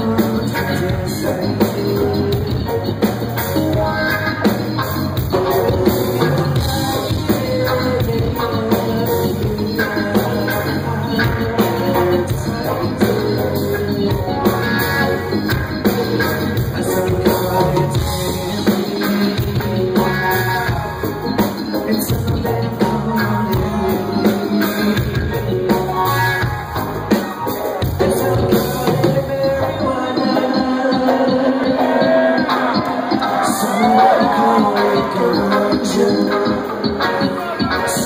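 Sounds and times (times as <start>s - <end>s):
live rock band: 0.0s - 38.0s.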